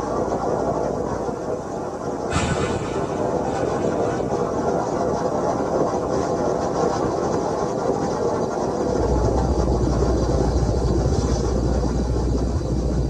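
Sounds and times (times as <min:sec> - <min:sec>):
deep low rumble: 0:02.3 - 0:05.4
volcano eruption roar: 0:02.3 - 0:05.6.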